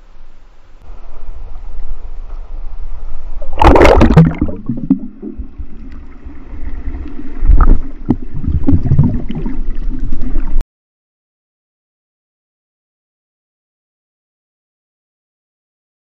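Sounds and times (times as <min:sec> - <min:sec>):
underwater gurgling and bubbling: 0:03.3 - 0:10.6
loud splash into sea: 0:03.5 - 0:05.0.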